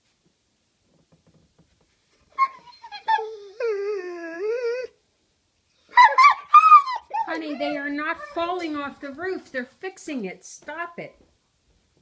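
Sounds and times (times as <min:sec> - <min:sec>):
dog yelp: 0:02.3 - 0:03.8, 0:05.9 - 0:08.4
dog whining howl: 0:02.4 - 0:05.0, 0:05.9 - 0:08.4.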